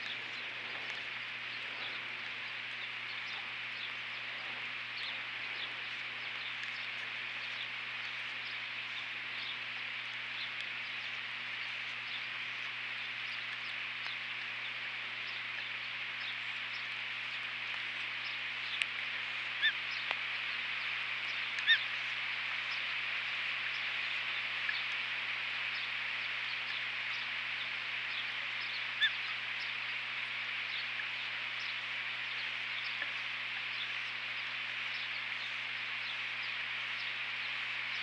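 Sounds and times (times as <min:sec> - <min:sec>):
steady hiss: 0:00.0 - 0:38.0
bird chirps: 0:18.2 - 0:22.9, 0:25.7 - 0:30.0.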